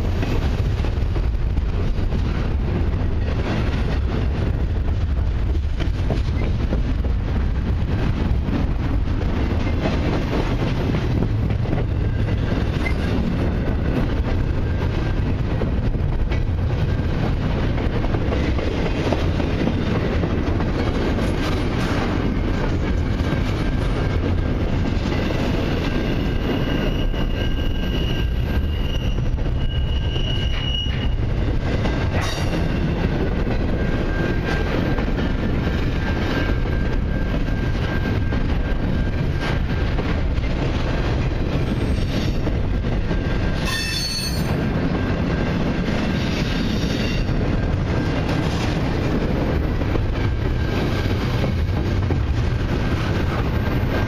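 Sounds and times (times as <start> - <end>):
train wheels rumbling on rail: 0.0 - 54.0
high wheel squeal: 26.0 - 31.2, 43.6 - 44.6.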